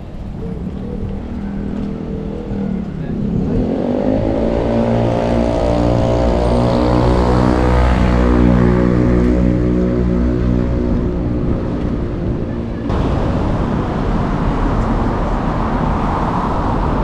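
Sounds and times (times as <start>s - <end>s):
street noise: 0.0s - 17.0s
vehicle engine pulling away: 0.2s - 17.0s.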